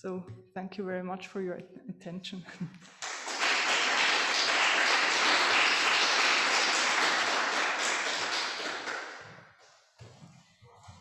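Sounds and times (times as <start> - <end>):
audience applauding: 2.8 - 9.4.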